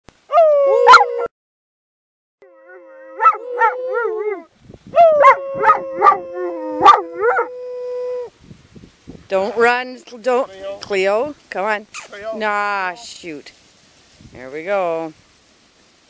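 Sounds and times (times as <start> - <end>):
dog howling: 0.3 - 1.3, 2.4 - 8.3
man imitating a wolf howl: 0.3 - 1.3, 2.4 - 8.3.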